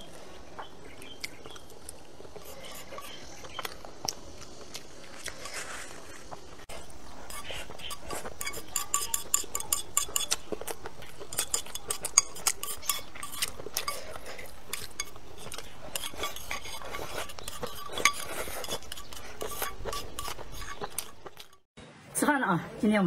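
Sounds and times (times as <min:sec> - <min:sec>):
chopsticks scraping ceramic bowl: 0:02.3 - 0:03.5, 0:05.3 - 0:21.7.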